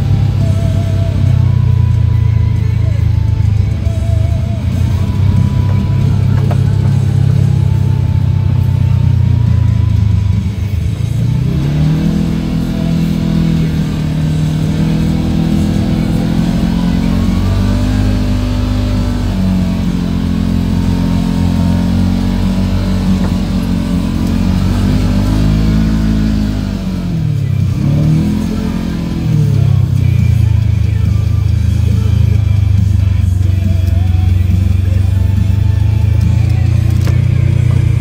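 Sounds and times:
off-road vehicle engine revving: 0.0 - 38.0.

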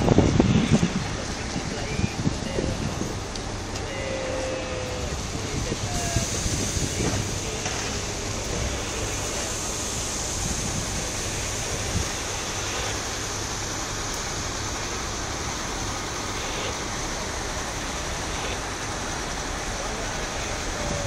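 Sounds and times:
wind rushing: 0.0 - 3.3
diesel engine running: 0.0 - 21.0.

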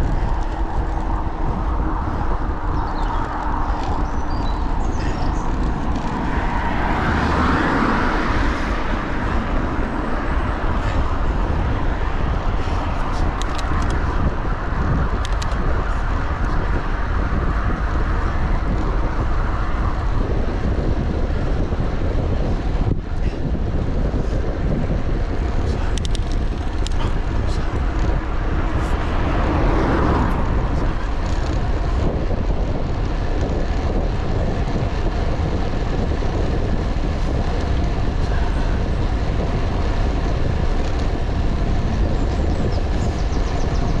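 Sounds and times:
bike tyres on tarmac: 0.0 - 44.0
vehicle passing: 0.0 - 44.0
wind on microphone: 0.0 - 44.0.

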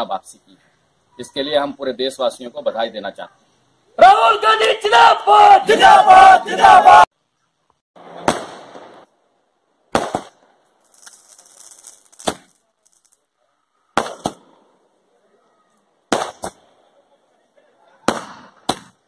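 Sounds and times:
firecrackers banging: 8.0 - 9.1, 9.9 - 13.2, 14.0 - 14.6, 16.1 - 16.6, 18.0 - 19.0.

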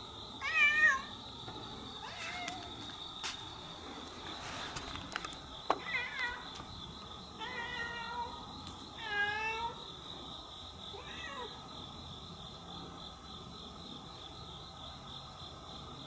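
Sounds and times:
cat meowing: 7.4 - 8.4, 10.9 - 11.6.

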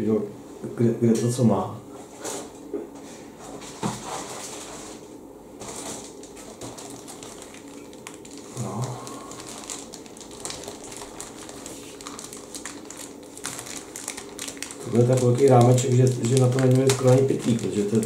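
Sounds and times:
plastic bags crinkling: 5.6 - 18.0
low hum of voice: 8.5 - 9.6.

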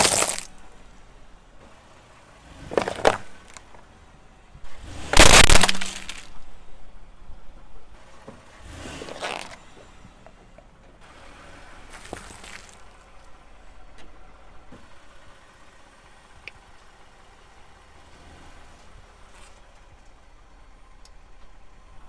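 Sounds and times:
tyre crunching candy packets: 0.0 - 0.5, 5.2 - 6.3
car engine idling: 0.0 - 22.0.

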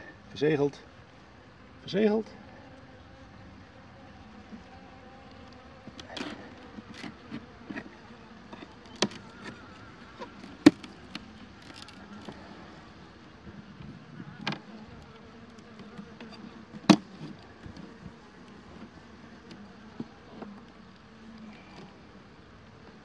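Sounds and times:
honeybees buzzing: 0.0 - 23.0
wooden knocks of hive frames: 5.5 - 12.5, 14.2 - 20.7.

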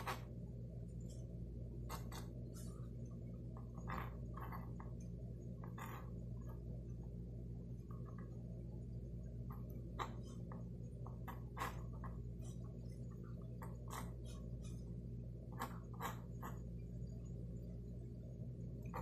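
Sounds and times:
steady low hum: 0.0 - 19.0
pencil scratching on paper: 1.8 - 2.9, 11.2 - 15.0, 15.6 - 16.8.

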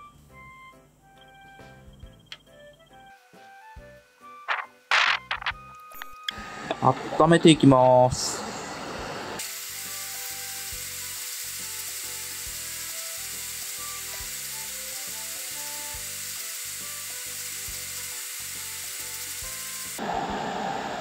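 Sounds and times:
hot-air nozzle hissing: 8.4 - 21.0.

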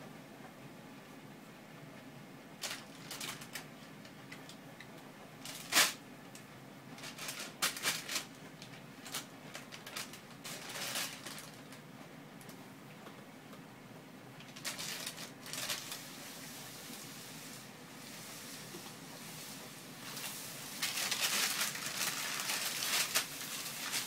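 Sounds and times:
plastic bag crinkling: 2.6 - 3.7, 5.4 - 6.0, 7.0 - 11.8, 14.4 - 16.3, 18.2 - 24.0.

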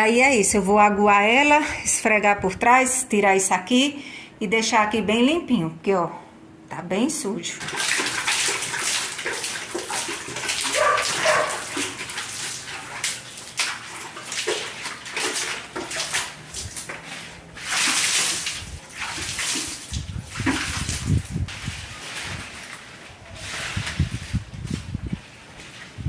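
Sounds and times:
water splashing on tiled floor: 7.5 - 26.0
dog yelping: 10.6 - 11.8.

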